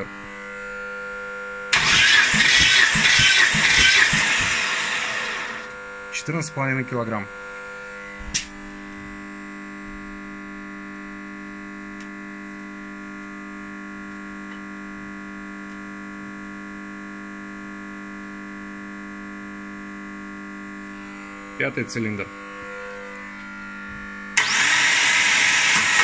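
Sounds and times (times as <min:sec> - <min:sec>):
electrical hum: 0:00.0 - 0:25.5.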